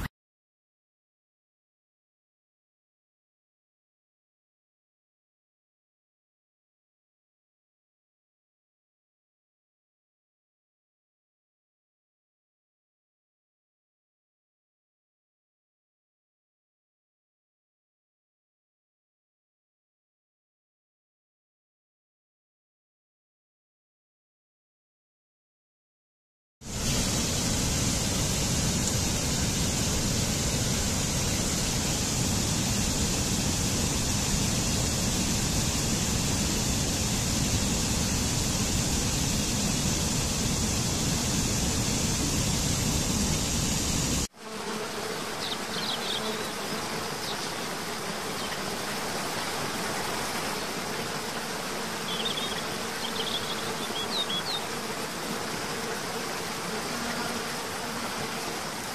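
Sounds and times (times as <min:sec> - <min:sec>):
insects buzzing: 0:26.7 - 0:58.9.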